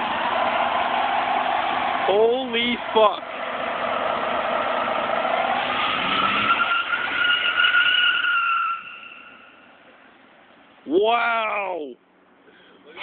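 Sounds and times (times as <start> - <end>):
tires squealing: 0.0 - 9.9
truck engine: 0.0 - 10.8.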